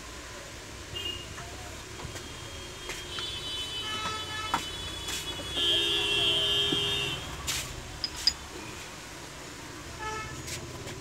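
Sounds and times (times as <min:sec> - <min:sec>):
metal clinks: 0:08.0 - 0:08.5.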